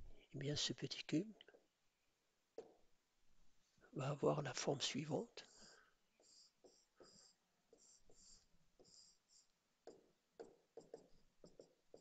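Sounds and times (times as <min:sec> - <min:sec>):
stylus scratching on screen: 0:05.4 - 0:12.0.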